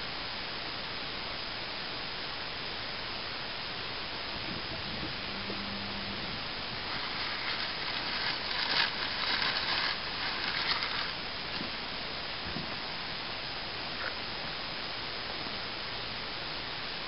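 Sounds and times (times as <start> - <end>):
steady hiss: 0.0 - 17.0
paper wrapper crinkling: 6.7 - 11.2.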